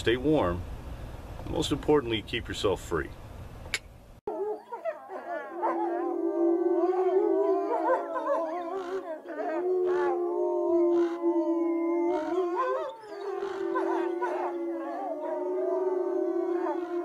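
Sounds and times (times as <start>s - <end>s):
wolves howling: 4.3s - 17.0s.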